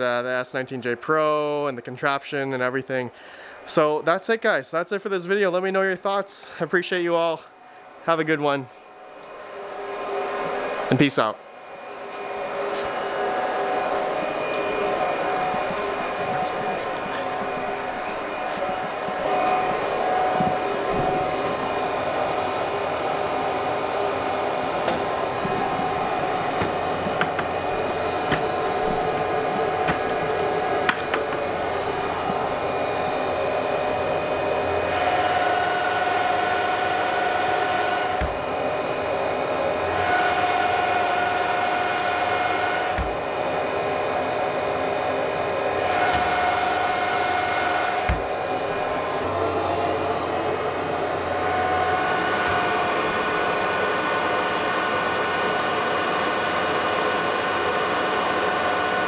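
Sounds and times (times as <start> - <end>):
muffled cooling fans rushing: 6.1 - 59.0
faint whine: 12.6 - 34.4.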